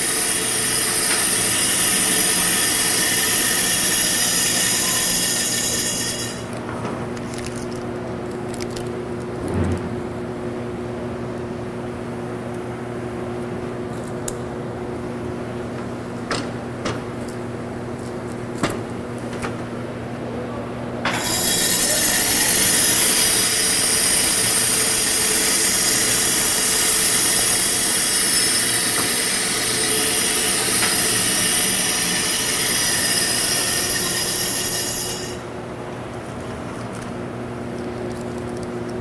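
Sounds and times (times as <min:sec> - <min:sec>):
high-pitched shrill of blade cutting: 0:00.0 - 0:06.5, 0:21.1 - 0:35.5
band saw humming: 0:00.0 - 0:06.6, 0:21.1 - 0:35.6.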